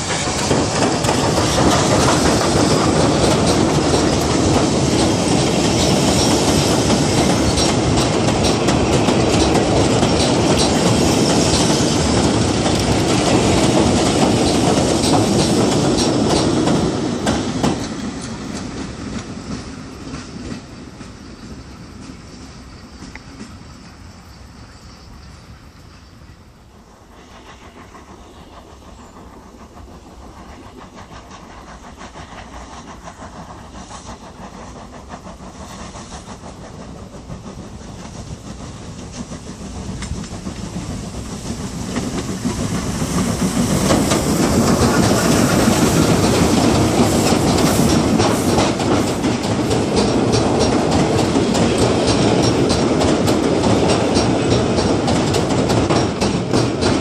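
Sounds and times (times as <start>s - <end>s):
wheels clattering over rail joints: 0.0s - 20.7s, 34.2s - 57.0s
steam train passing: 0.0s - 57.0s.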